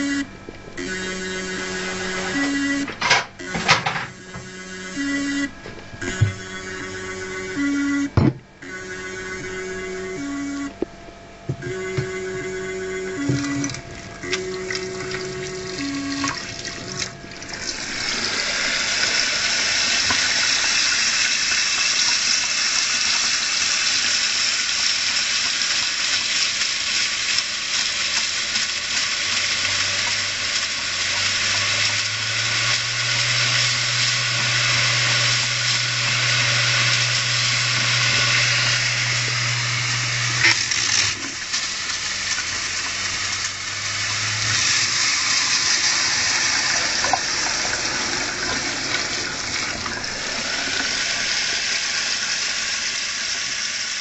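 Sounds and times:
low steady hum: 0.0 - 20.1
mechanical whirring: 0.0 - 20.7, 29.6 - 52.6
tap water splashing: 46.5 - 51.0.

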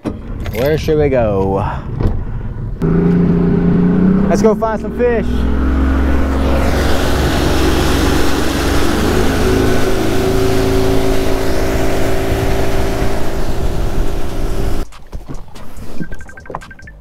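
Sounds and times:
outboard motor at speed: 2.8 - 14.8
wind and spray rushing: 5.0 - 16.2.

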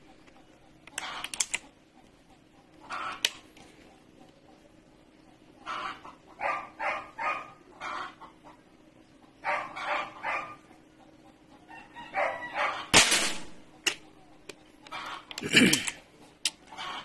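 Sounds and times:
animal calling: 9.4 - 12.9
air rifle shot: 12.9 - 13.6.

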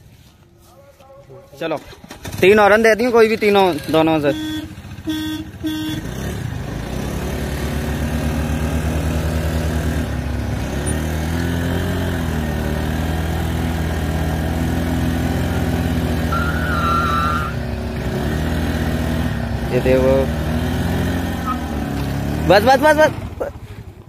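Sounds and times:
scooter engines running hard: 1.6 - 24.0
high squeal: 16.3 - 17.6.

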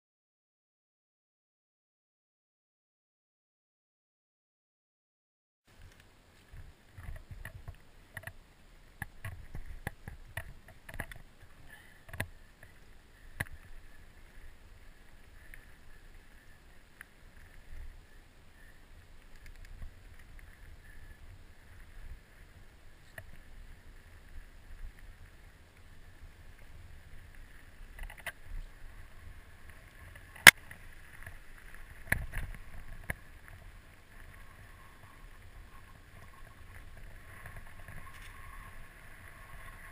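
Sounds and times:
rumble of tyres and wind: 5.7 - 39.9
bike clicks and knocks over stones: 9.0 - 11.3.

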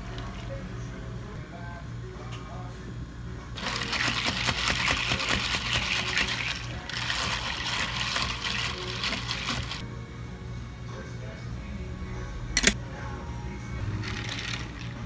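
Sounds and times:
steady low hum: 0.0 - 15.0
ice cubes clinking in plastic cup: 3.6 - 9.8, 14.0 - 15.0.

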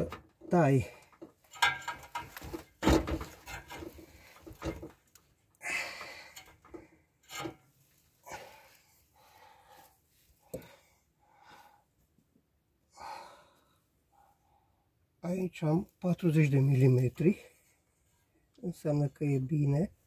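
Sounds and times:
person breathing heavily: 5.6 - 6.5, 8.2 - 12.0, 12.9 - 14.9.

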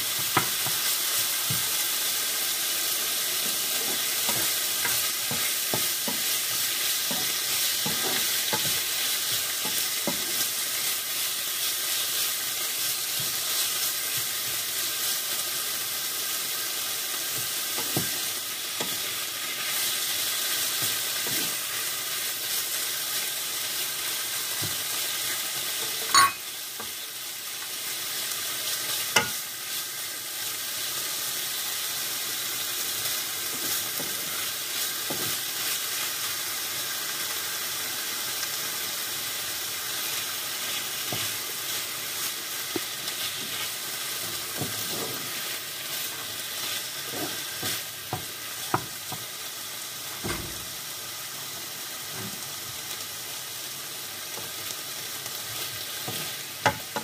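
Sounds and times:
chicken and onion sizzling in pan: 0.0 - 57.0
wooden spatula scraping a pan: 3.4 - 10.6, 20.8 - 21.8, 42.7 - 49.2, 56.0 - 57.0.

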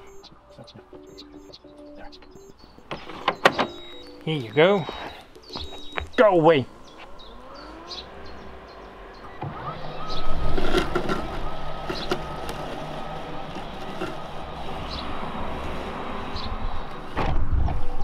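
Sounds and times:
robot lawn mower motor whine: 6.7 - 18.0.

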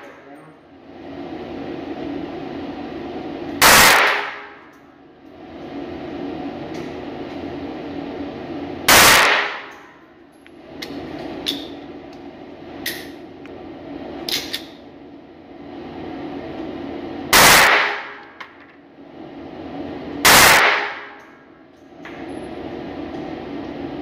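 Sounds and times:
steady low hum: 0.0 - 24.0
pistol shots: 3.6 - 4.6, 8.9 - 9.7, 17.4 - 18.2, 20.3 - 21.2.

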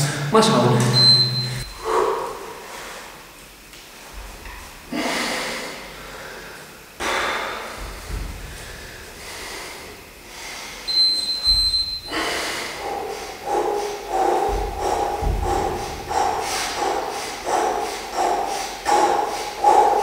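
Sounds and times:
brief high-pitched tone: 0.4 - 1.7
man breathing hard: 1.6 - 3.3, 4.8 - 20.0.

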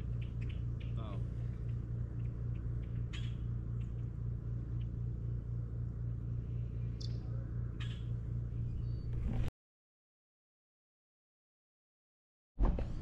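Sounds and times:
low rumbling hum: 0.0 - 9.5.

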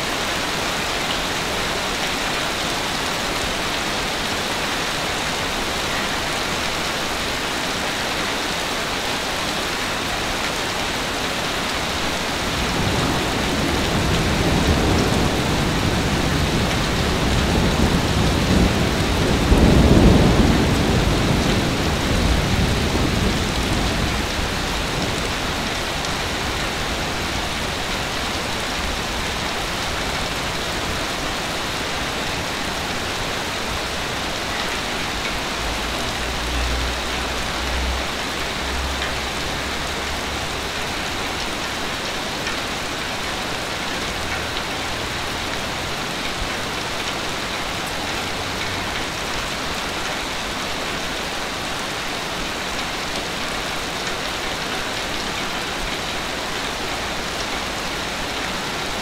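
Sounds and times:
steady rain falling: 0.0 - 59.0
low rumble of thunder: 12.4 - 27.8.

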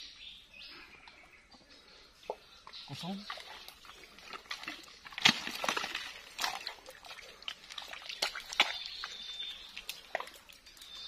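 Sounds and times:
dry fronds and twigs crackling: 0.9 - 11.0
footsteps squelching in mud: 3.0 - 11.0.

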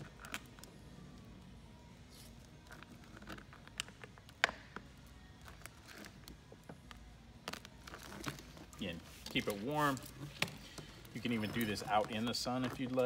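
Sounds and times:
plastic film crinkling as peeled: 7.3 - 13.0.

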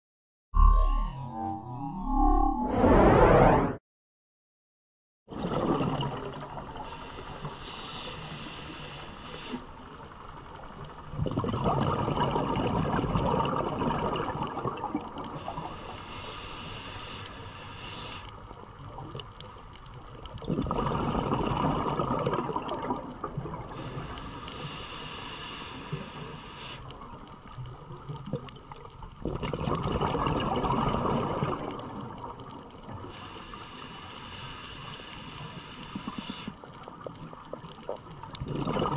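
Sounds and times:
exhaled bubbles rushing: 5.3 - 7.0, 11.0 - 15.6, 20.3 - 23.9, 29.2 - 33.0, 37.4 - 38.9
regulator hissing inhale: 6.8 - 9.7, 15.4 - 18.4, 23.7 - 26.9, 33.1 - 36.7.

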